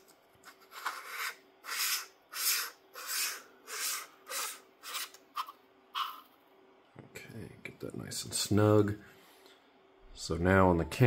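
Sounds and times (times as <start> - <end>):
rasping metal threads turning: 0.8 - 6.2.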